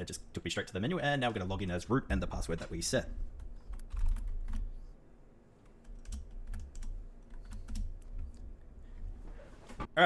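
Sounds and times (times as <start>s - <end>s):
keyboard typing: 3.4s - 4.7s, 5.6s - 8.4s.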